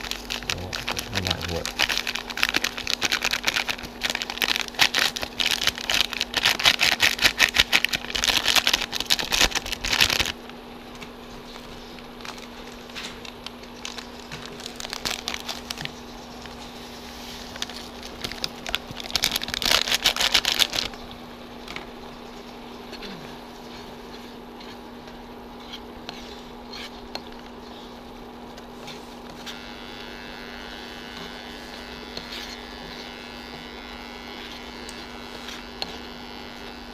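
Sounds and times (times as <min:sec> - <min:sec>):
foil sachets crinkling: 0:00.0 - 0:21.2
steady low hum: 0:00.0 - 0:36.9.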